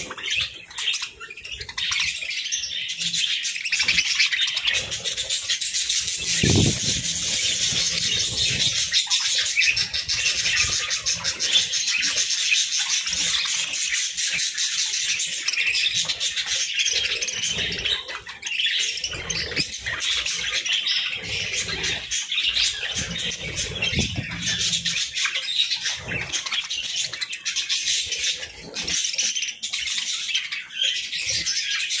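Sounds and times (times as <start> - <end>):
budgerigars chattering: 0.0 - 32.0
wing flutters: 4.2 - 9.1.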